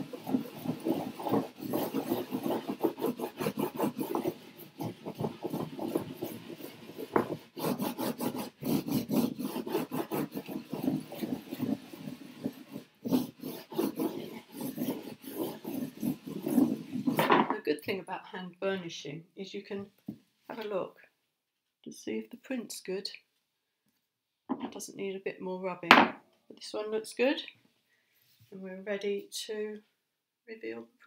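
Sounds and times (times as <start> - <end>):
paper rubbing strokes: 0.0 - 17.2.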